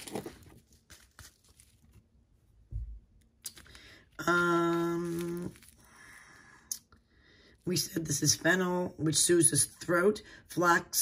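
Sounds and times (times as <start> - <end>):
soft low thump: 2.7 - 3.1.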